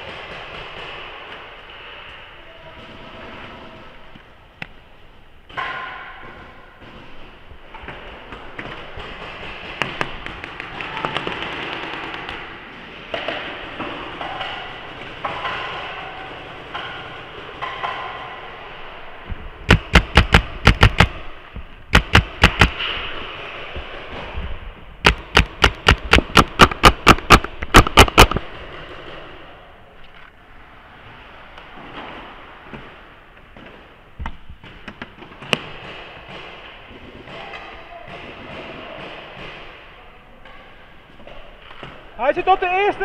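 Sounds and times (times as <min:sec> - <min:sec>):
paintball marker firing: 0:08.3 - 0:18.1, 0:19.7 - 0:23.0, 0:25.0 - 0:28.5
distant paintball pops: 0:21.9 - 0:22.8, 0:25.0 - 0:28.4.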